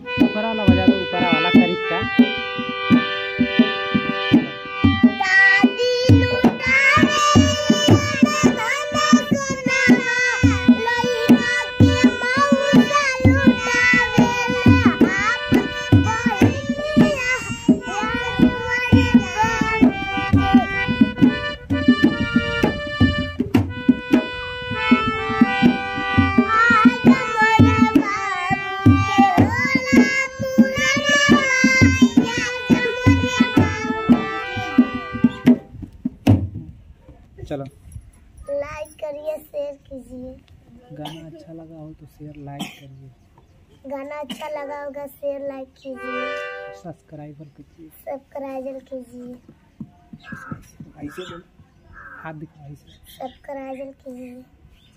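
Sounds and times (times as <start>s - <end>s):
harmonium chords: 0.0s - 35.7s, 44.0s - 47.8s
drum beating steady rhythm: 0.0s - 36.8s, 49.4s - 52.3s
children singing: 5.1s - 21.2s, 25.1s - 35.4s.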